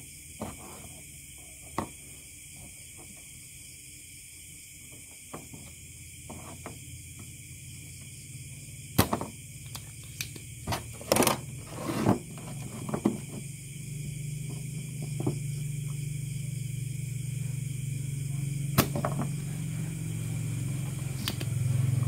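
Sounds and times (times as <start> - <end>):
faint hum: 4.2 - 22.0
scraping rustle: 10.7 - 13.5.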